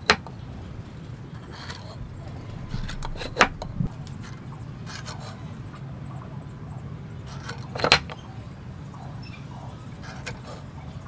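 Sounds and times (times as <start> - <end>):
steady low hum: 1.9 - 5.6.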